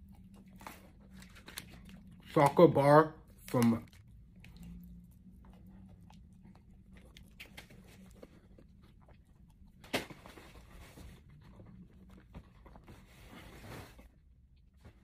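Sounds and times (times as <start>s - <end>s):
person chewing chocolate: 0.0s - 2.5s, 3.2s - 9.8s.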